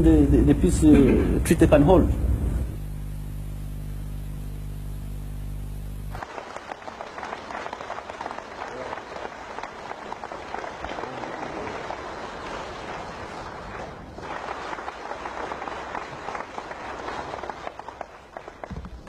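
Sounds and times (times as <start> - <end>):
audience applauding: 6.1 - 19.0.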